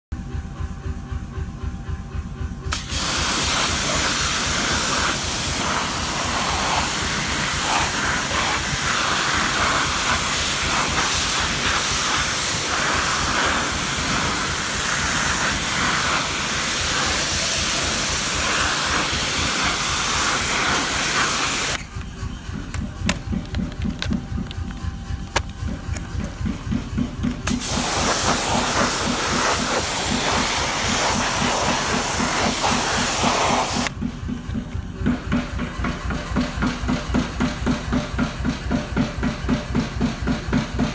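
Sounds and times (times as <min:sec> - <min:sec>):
pressure washer spraying: 0:02.7 - 0:21.9, 0:27.4 - 0:33.9.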